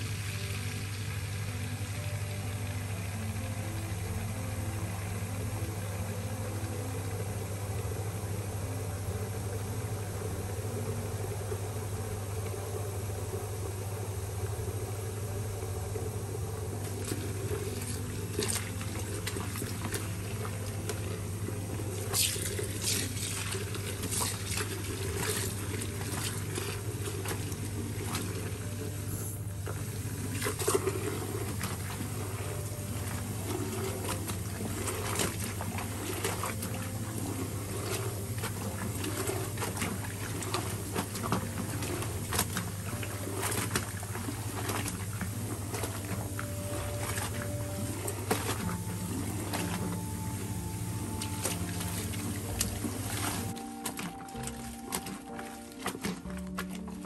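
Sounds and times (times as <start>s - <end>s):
splashes and squelches of washing: 16.8s - 57.0s.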